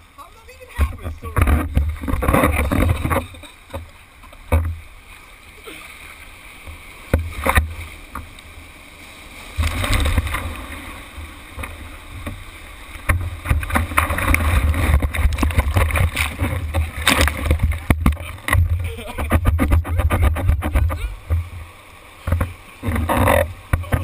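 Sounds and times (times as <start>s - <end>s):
water sloshing and splashing: 0.0s - 24.0s
sharp water slaps: 13.0s - 21.4s
wind buffeting on microphone: 13.0s - 24.0s.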